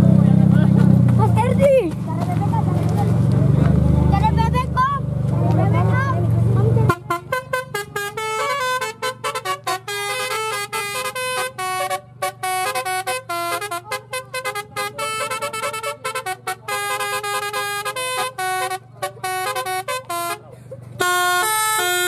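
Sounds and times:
air horn playing a tune: 6.9s - 22.0s.

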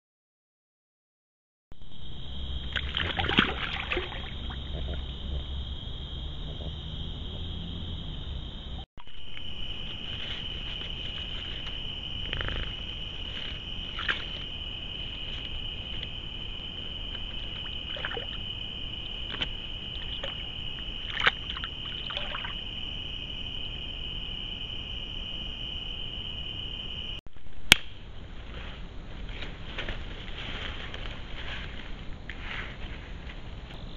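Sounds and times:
night insects trilling: 1.8s - 27.2s
beaver splashing water: 2.7s - 5.1s, 17.1s - 18.5s, 19.2s - 22.6s.

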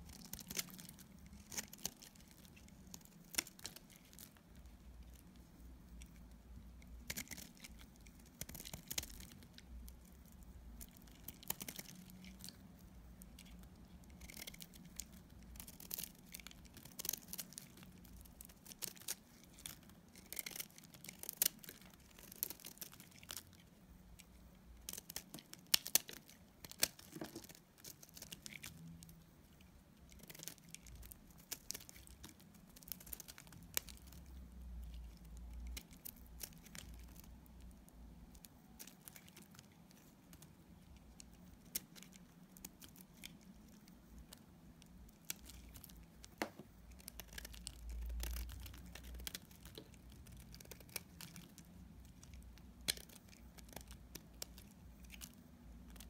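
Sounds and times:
knife shaving soap: 38.4s - 56.0s.

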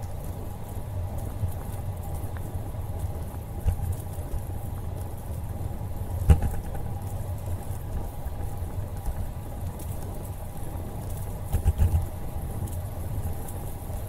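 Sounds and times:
bicycle tyre rumble: 0.0s - 14.0s
faint hum: 0.0s - 14.0s
wind buffeting microphone: 0.0s - 14.0s
sharp thump: 6.3s - 6.8s.

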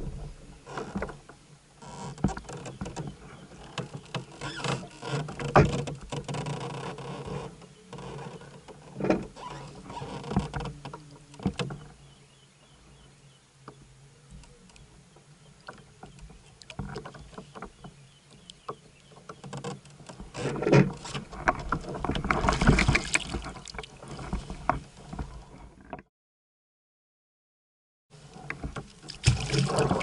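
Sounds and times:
knocks and thuds against hull: 0.0s - 1.2s, 2.2s - 6.5s, 16.2s - 26.0s, 28.5s - 30.0s
fish thrashing and splashing: 21.7s - 24.4s, 28.9s - 30.0s.

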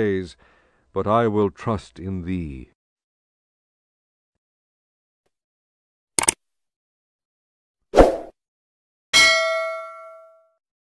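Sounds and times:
bell ding: 9.2s - 10.6s.

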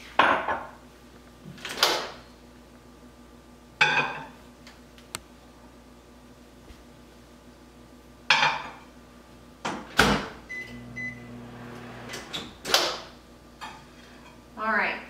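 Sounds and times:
microwave humming: 9.6s - 13.4s.

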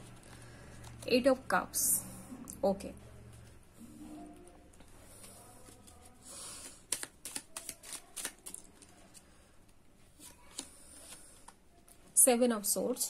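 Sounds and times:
cards rustling: 0.0s - 1.4s, 4.7s - 12.0s
card snaps and clicks: 6.9s - 8.7s.

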